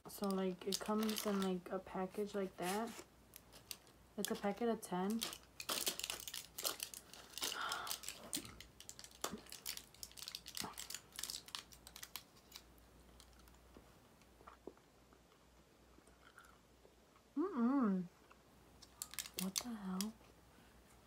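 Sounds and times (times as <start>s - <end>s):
gum packet crinkling: 0.1s - 1.6s, 3.4s - 13.6s, 18.8s - 20.2s.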